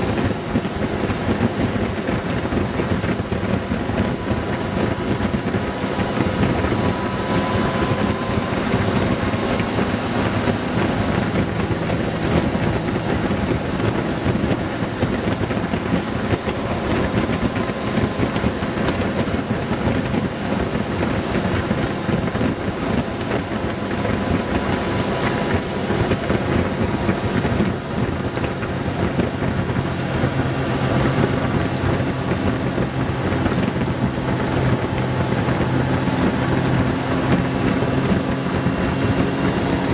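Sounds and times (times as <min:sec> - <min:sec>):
motorcycle engine cruising: 0:00.0 - 0:39.9
wind rush on microphone: 0:00.0 - 0:39.9.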